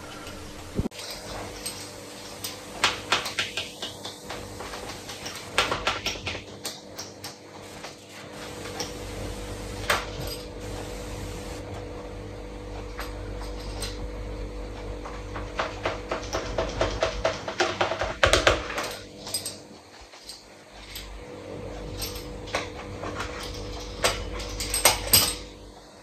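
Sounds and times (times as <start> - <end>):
steady hum: 0.0 - 6.2, 7.5 - 16.9
kitchen clicks and knocks: 15.0 - 21.2.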